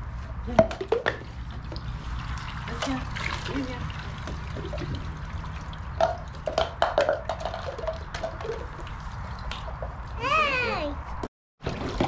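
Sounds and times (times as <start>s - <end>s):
water splashing and dripping: 0.8s - 10.2s, 11.6s - 12.0s
plastic toys knocking: 6.0s - 8.7s.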